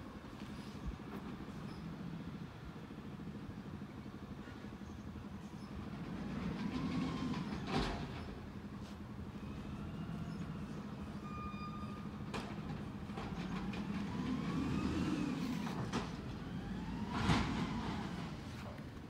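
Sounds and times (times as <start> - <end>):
garbage truck running: 1.0 - 18.8
hydraulics whining: 5.7 - 18.8.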